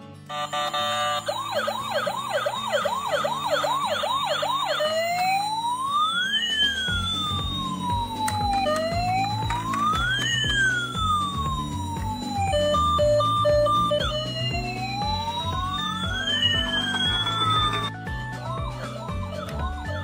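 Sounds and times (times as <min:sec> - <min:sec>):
background music: 0:00.0 - 0:20.0
toy siren warbling: 0:00.3 - 0:20.0.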